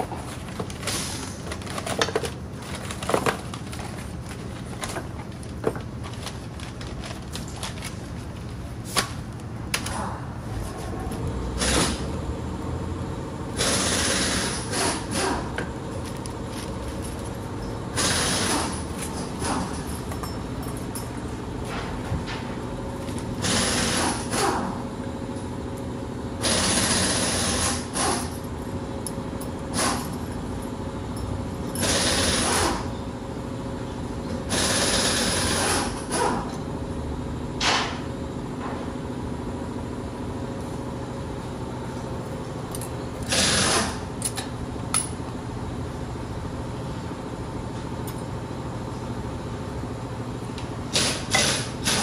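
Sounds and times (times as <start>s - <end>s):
power tool running: 23.4s - 24.7s, 26.4s - 28.3s, 43.2s - 44.0s.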